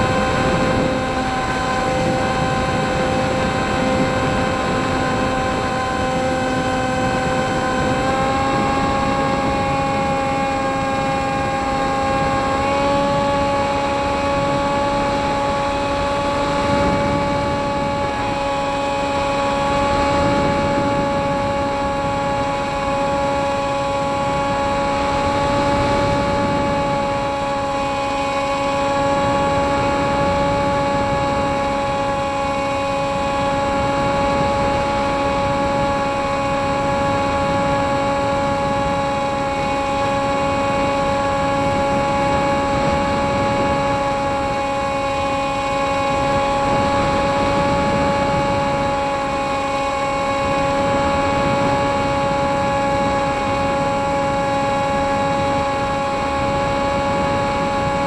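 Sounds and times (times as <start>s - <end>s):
model airplane motor droning: 0.0s - 58.0s
wind rushing on microphone: 0.0s - 58.0s.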